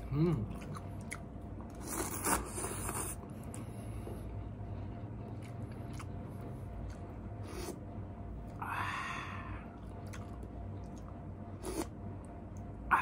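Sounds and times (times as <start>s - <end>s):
person chewing noodles: 0.0s - 12.9s
breathy exhale: 8.6s - 9.8s.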